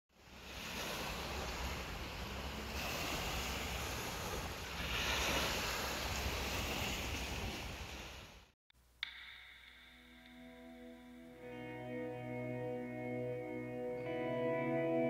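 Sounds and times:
small waves washing onto beach: 0.1s - 8.6s.

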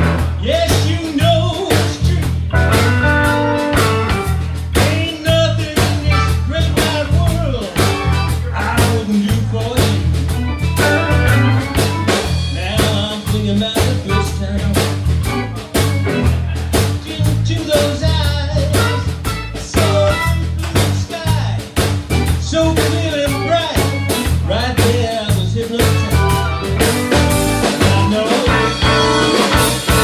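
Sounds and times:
live band playing: 0.0s - 30.0s.

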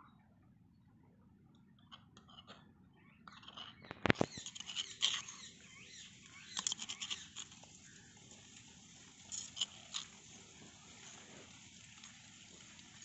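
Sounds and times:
spoon scraping stone mortar: 1.9s - 13.0s
birds chirping: 2.6s - 13.0s.

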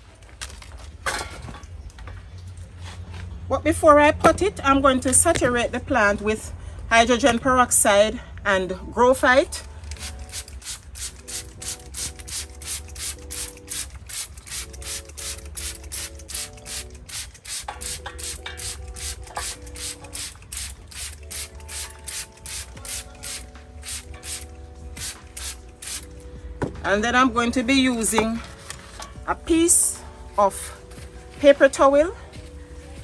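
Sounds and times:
trigger spray bottle squirting: 9.9s - 26.1s.

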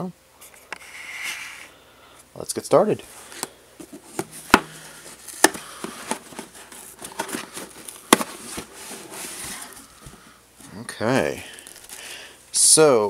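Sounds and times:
cardboard scraping and rustling: 3.2s - 10.3s
cardboard knocks: 4.1s - 4.8s.

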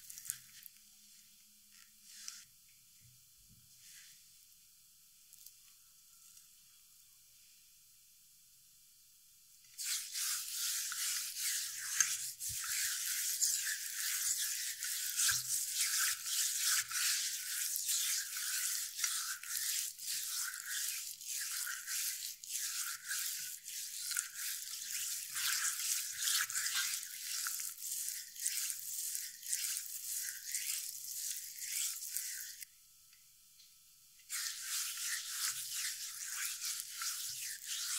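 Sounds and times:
hand rubbing salt into skin: 9.8s - 32.6s, 34.3s - 37.9s.

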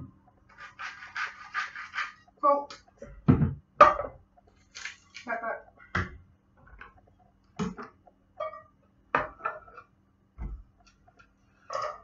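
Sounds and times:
onion scraped off board: 0.5s - 2.2s.

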